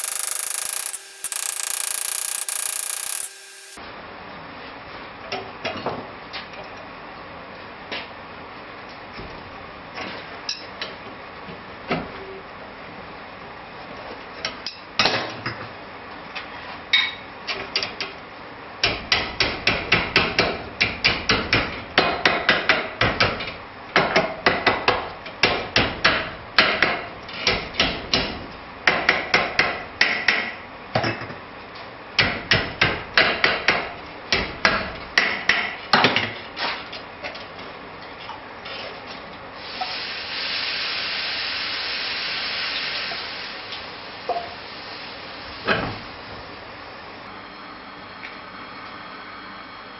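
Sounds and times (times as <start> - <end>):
hammer striking hot steel: 0.0 - 3.8.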